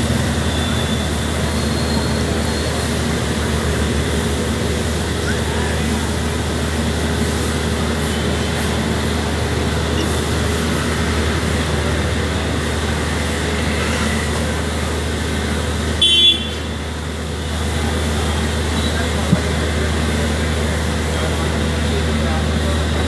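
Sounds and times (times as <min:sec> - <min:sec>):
street traffic rumble: 0:00.0 - 0:23.0
vehicle horn toot: 0:16.0 - 0:16.7.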